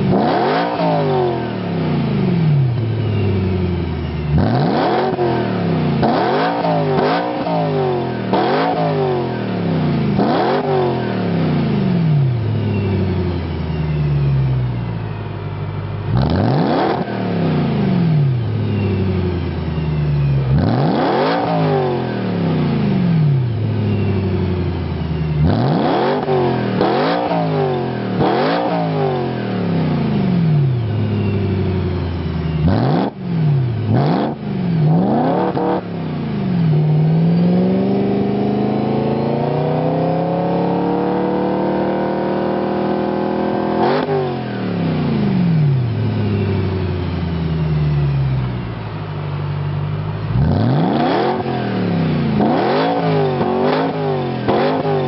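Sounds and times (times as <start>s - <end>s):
car engine revving: 0.0s - 55.0s.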